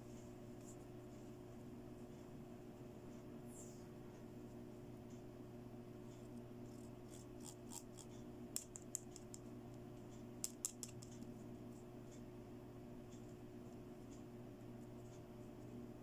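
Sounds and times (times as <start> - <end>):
faint steady hum: 0.0 - 16.0
fingernails scratching plastic comb: 6.7 - 9.4.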